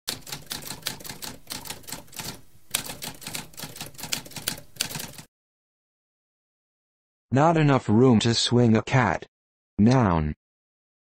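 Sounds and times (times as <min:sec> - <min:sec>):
typewriter keys clacking: 0:00.1 - 0:05.3.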